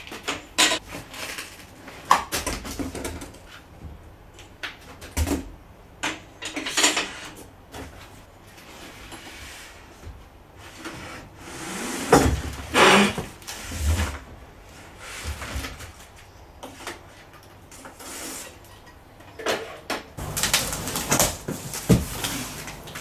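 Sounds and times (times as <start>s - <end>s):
cardboard scraping and rustling: 20.2s - 23.0s
knocks on cardboard box: 21.0s - 22.2s.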